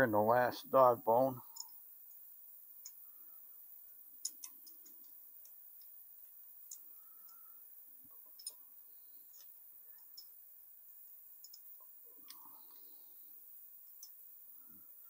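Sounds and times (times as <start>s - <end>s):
light metallic clicks of parts: 4.2s - 8.6s, 11.4s - 12.8s, 13.8s - 14.2s.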